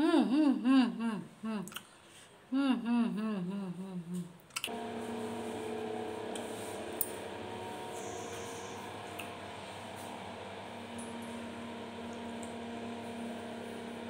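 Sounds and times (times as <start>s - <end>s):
mechanical hum with held tones: 0.0s - 14.0s
wavering hummed tone: 8.0s - 9.3s.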